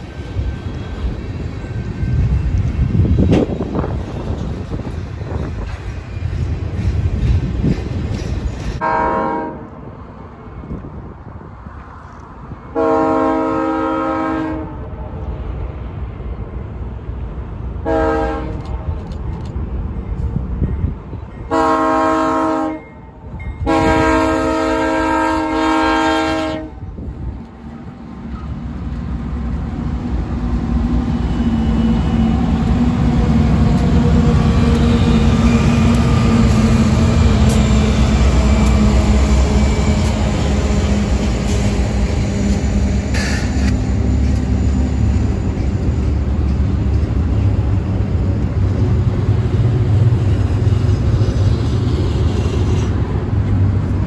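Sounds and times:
freight train clattering by: 0.0s - 54.0s
locomotive air horn: 8.8s - 9.8s, 12.7s - 14.9s, 17.8s - 18.7s, 21.5s - 23.0s, 23.6s - 26.9s
diesel engines rumbling: 15.2s - 54.0s.

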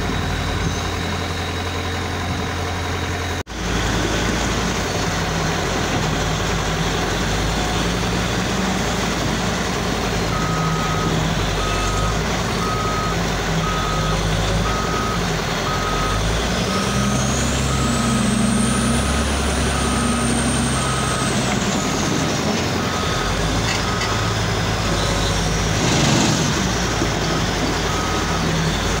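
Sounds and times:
diesel engine running: 0.0s - 29.0s
reversing alarm beeps: 10.3s - 25.4s, 27.8s - 29.0s.

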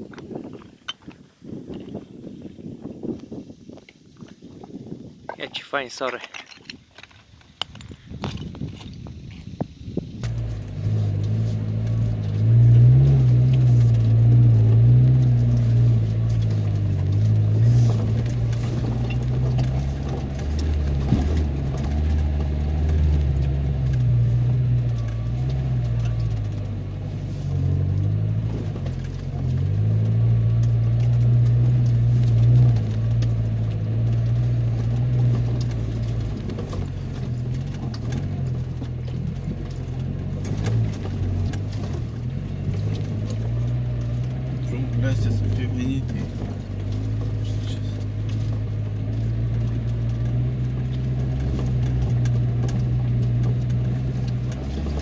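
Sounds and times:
car engine running at low speed: 7.0s - 55.0s
knocks and rattles from bumps: 11.9s - 27.0s, 27.7s - 55.0s.

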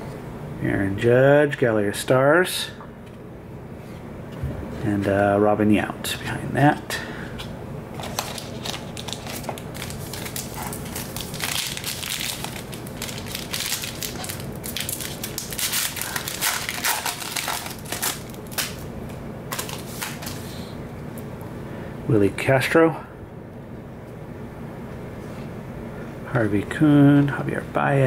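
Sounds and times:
foil wrapper crinkling: 8.0s - 18.9s, 19.5s - 20.5s.

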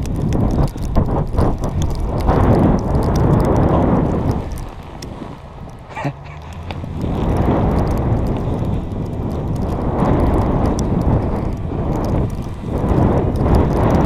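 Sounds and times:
snowboard sliding over snow: 0.0s - 14.0s
wind rushing over microphone: 0.0s - 14.0s.

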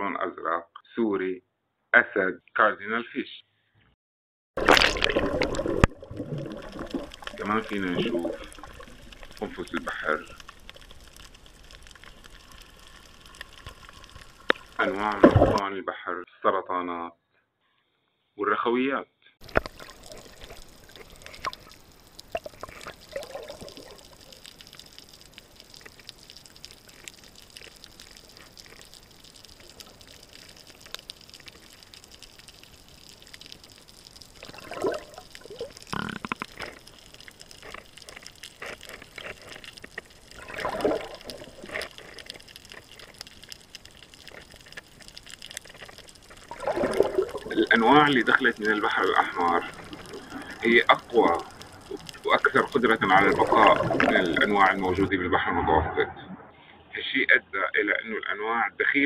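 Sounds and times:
crackling clicks: 4.6s - 15.6s, 19.4s - 55.1s
muffled underwater hiss: 4.6s - 15.6s, 19.4s - 57.7s
water gurgling and bubbles: 4.6s - 15.7s, 19.4s - 57.0s.

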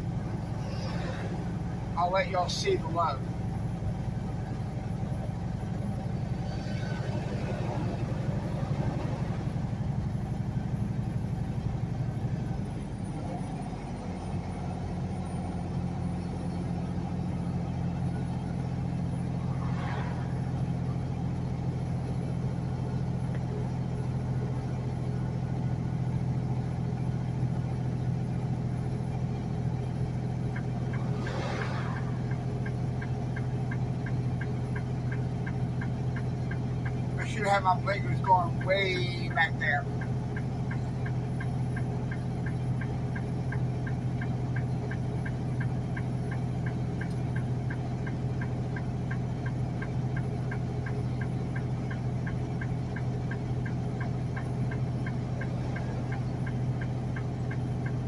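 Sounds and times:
truck diesel engine droning: 0.0s - 58.0s
turn signal ticking: 20.2s - 58.0s.

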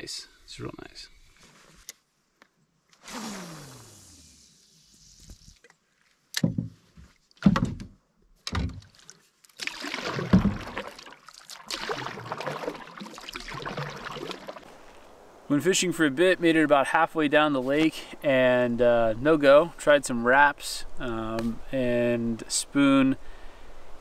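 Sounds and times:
hollow knocks on canoe hull: 6.4s - 8.9s
water swishing and splashing: 8.5s - 15.3s.

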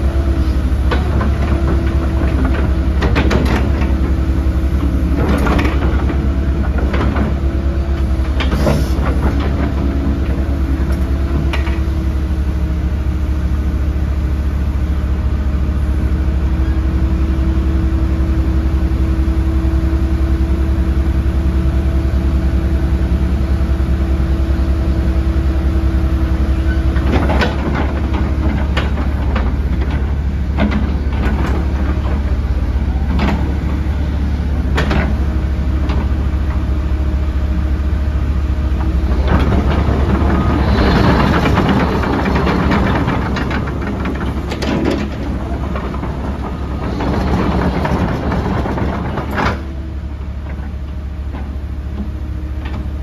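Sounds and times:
excavator diesel engine droning: 0.0s - 53.0s
metallic clanks and knocks: 39.1s - 49.8s.

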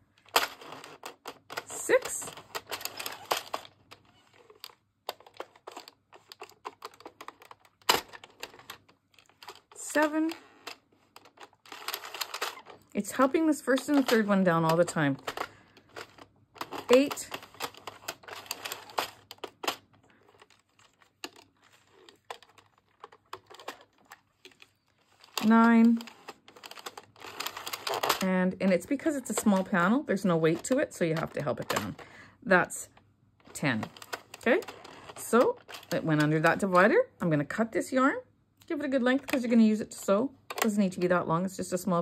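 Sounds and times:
knitting machine clicking: 0.3s - 20.6s, 21.2s - 28.4s.

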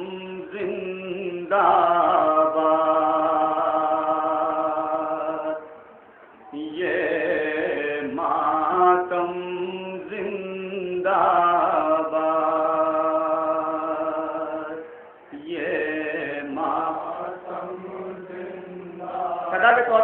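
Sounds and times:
man chanting a lament: 15.4s - 20.0s.

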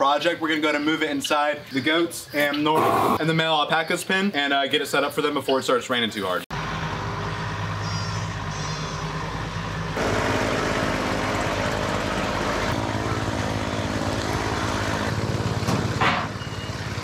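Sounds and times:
tractor engine running: 6.6s - 17.0s.

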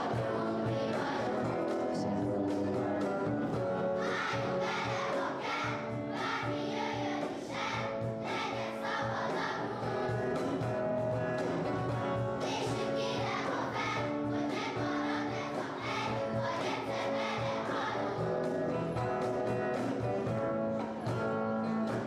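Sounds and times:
children's choir singing: 0.0s - 2.6s, 3.8s - 10.6s, 12.3s - 19.0s.

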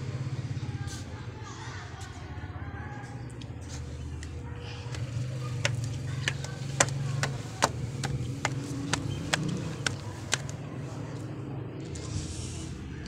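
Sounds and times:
footsteps on concrete stairs: 4.9s - 10.6s.

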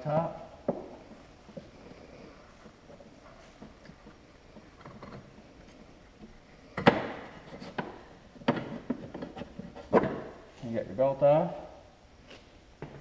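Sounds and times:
faint scraping and handling: 1.0s - 10.8s.

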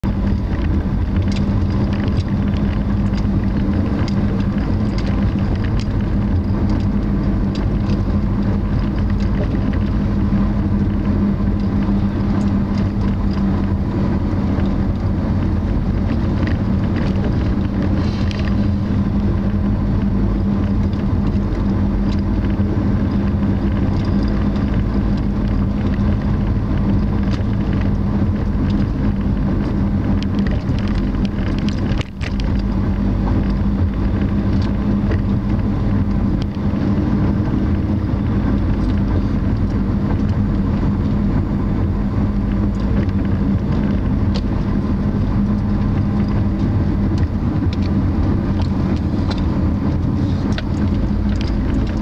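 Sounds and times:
car road and engine rumble: 0.0s - 52.0s
faint light ticks: 0.2s - 10.0s.

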